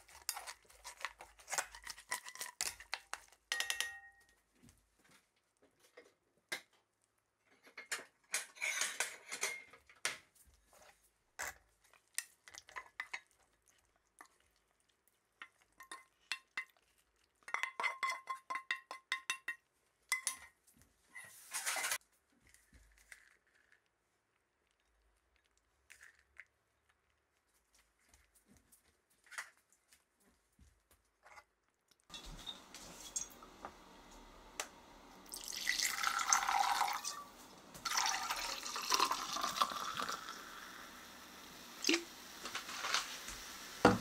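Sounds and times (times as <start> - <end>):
knocks and clinks against pan: 3.5 - 4.3, 17.5 - 20.5
wooden spatula scraping frying pan: 42.4 - 44.0.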